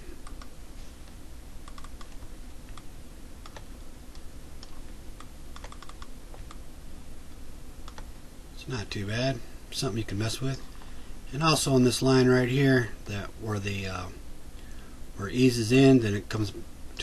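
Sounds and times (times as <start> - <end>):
steady low hum: 0.0 - 17.0
keyboard and mouse clicks: 0.2 - 0.5, 1.6 - 6.6, 7.8 - 8.1.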